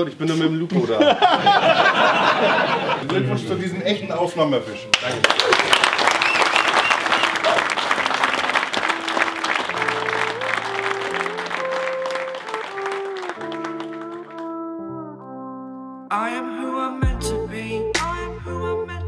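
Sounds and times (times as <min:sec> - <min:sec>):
music track: 0:03.2 - 0:19.0
slow music with held notes: 0:03.4 - 0:05.2, 0:08.1 - 0:19.0
audience applauding: 0:04.9 - 0:14.5.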